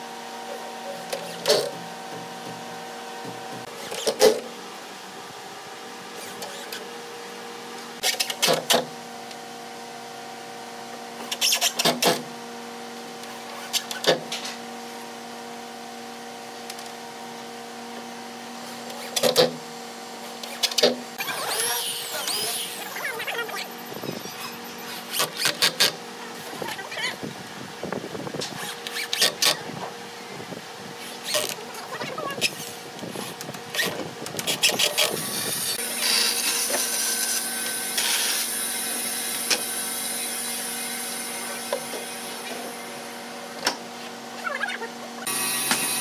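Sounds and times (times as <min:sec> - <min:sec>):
workshop machine hum: 0:00.0 - 0:46.0.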